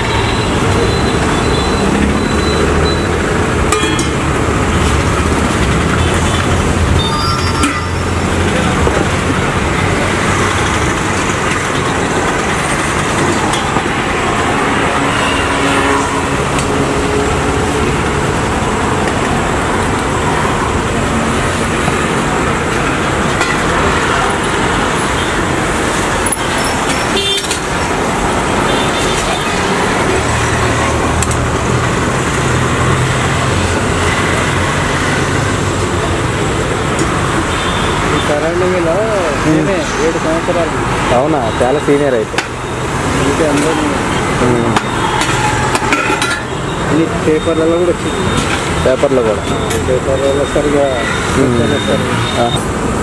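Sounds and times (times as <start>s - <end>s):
road traffic: 0.0s - 53.0s
car horns: 5.8s - 8.9s, 14.6s - 17.6s, 26.2s - 27.8s, 28.4s - 30.6s, 37.3s - 38.8s, 43.2s - 52.7s.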